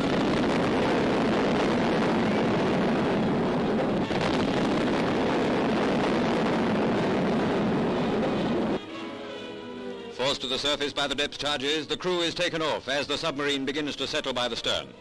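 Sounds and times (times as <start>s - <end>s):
underwater explosions roaring: 0.0s - 8.8s.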